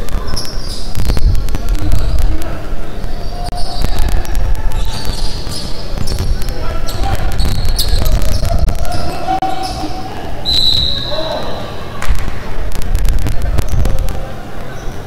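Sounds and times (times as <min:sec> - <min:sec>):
referee's whistle: 0:10.4 - 0:11.4.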